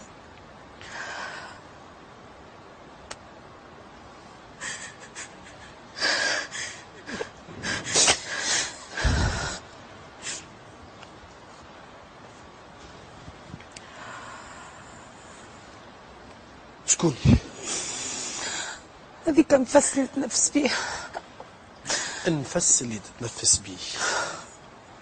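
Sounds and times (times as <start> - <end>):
woman crying and sobbing: 4.6 - 9.6, 19.3 - 22.2.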